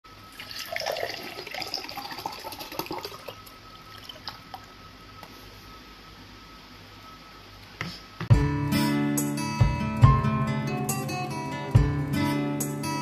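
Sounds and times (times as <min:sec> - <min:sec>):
water pouring into glass: 0:00.3 - 0:04.7.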